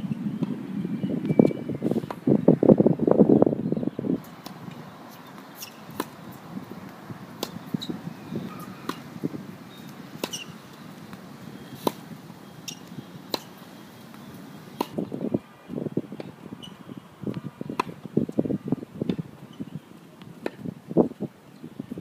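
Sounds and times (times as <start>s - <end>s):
wind buffeting microphone: 0.0s - 5.1s, 5.8s - 13.3s, 14.2s - 19.9s, 20.5s - 22.0s
tennis ball hits and bounces: 4.2s - 15.0s, 17.3s - 18.1s.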